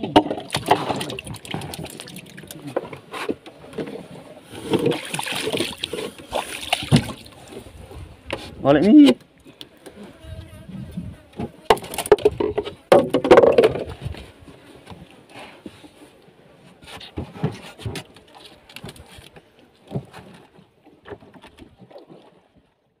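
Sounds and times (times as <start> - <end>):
knocks against wooden boat: 11.4 - 14.1.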